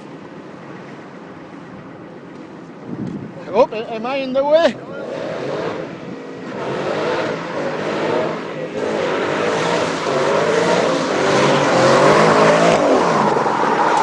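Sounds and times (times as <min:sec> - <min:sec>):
car engine revving: 0:04.3 - 0:14.0.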